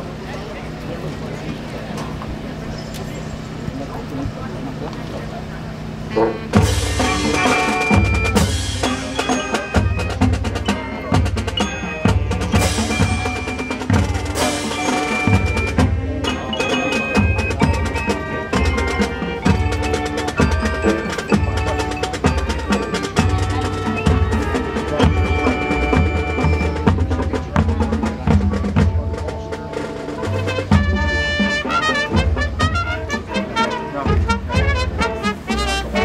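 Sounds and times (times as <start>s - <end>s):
marching drumline: 5.5s - 36.0s
mallet keyboards ringing: 6.6s - 29.0s.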